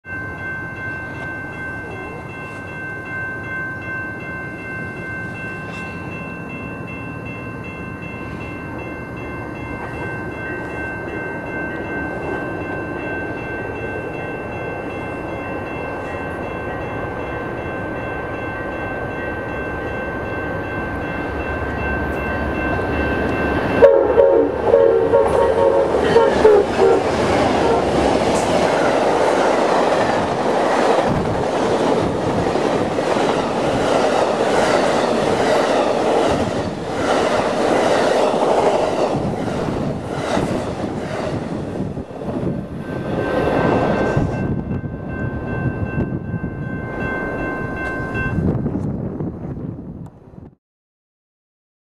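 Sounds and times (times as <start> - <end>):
train horn blast: 23.8 - 28.0.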